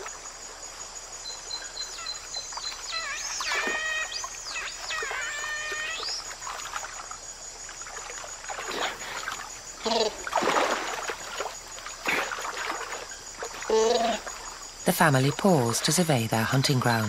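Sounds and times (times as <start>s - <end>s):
otters calling: 1.6s - 6.7s
splashing in water: 2.0s - 17.0s.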